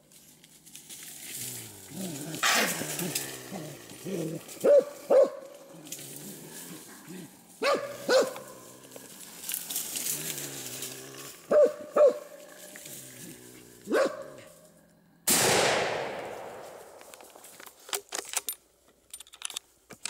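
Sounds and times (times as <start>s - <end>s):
leaves rustling underfoot: 0.0s - 14.8s, 16.3s - 17.9s
dog barking: 4.6s - 5.5s, 7.6s - 8.6s, 11.5s - 12.4s, 13.9s - 14.5s.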